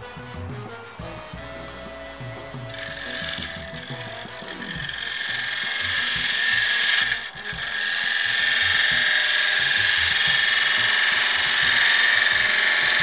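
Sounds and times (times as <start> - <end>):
lathe tool scraping wood: 2.6 - 13.0.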